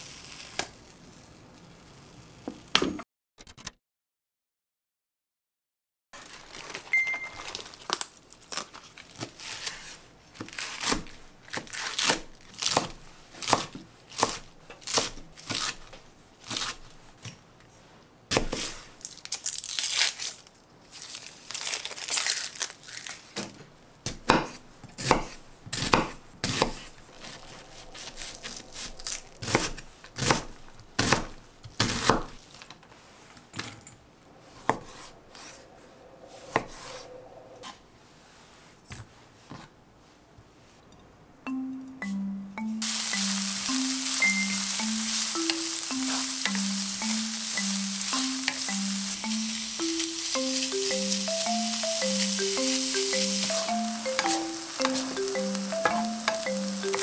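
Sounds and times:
onion skin peeling and crackling: 0.0 - 2.5, 6.2 - 16.9, 18.3 - 23.5, 25.8 - 32.8
lettuce leaves tearing and crinkling: 6.2 - 16.8, 19.0 - 23.6, 27.1 - 30.3
knife cutting on wooden board: 29.4 - 32.3.

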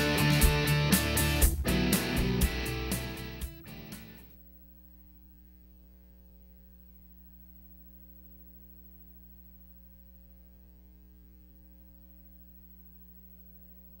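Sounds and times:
faint electrical hum with hiss: 0.0 - 14.0.

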